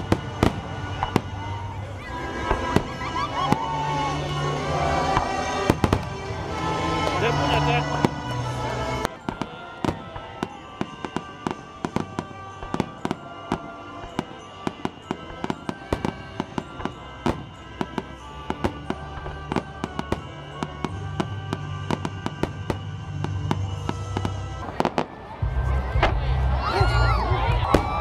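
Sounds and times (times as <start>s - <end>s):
fireworks bangs and crackles: 0.0s - 28.0s
music with bass: 25.4s - 28.0s.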